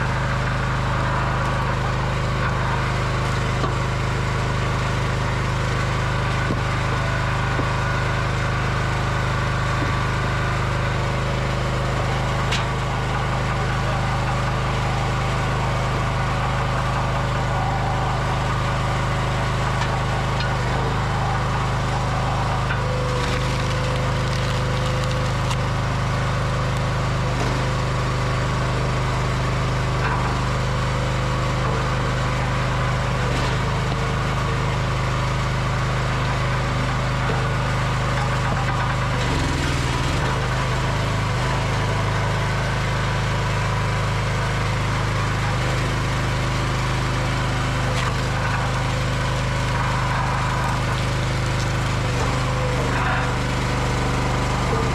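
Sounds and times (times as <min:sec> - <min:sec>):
log splitter engine running: 0:00.0 - 0:54.9
wood cracking and knocking: 0:22.6 - 0:25.7.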